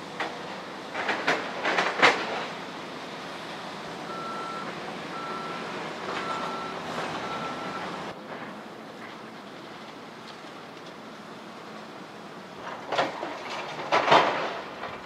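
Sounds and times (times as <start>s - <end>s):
machinery noise: 0.0s - 10.0s
backup alarm beeping: 4.1s - 5.6s, 6.2s - 7.9s.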